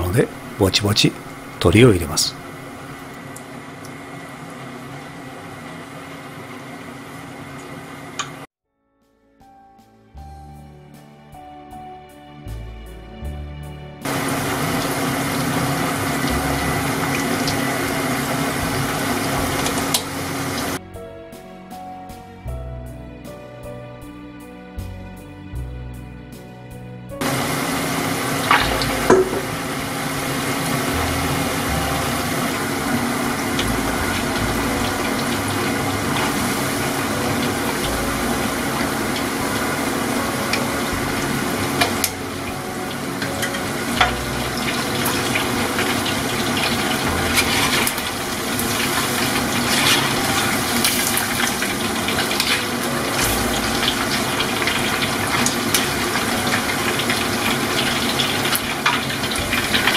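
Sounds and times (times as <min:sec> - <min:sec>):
chicken deep-frying in oil: 0:00.0 - 0:08.5, 0:14.0 - 0:20.8, 0:27.2 - 0:59.9.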